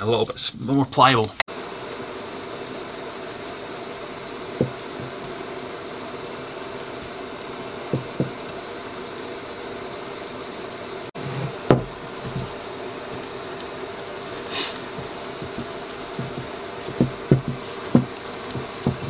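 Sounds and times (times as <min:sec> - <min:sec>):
hands rubbing wax into wood: 0:01.5 - 0:19.0
steady hum: 0:01.5 - 0:19.0
wooden block knocking on bench: 0:07.9 - 0:08.4, 0:11.7 - 0:12.5, 0:16.2 - 0:19.0.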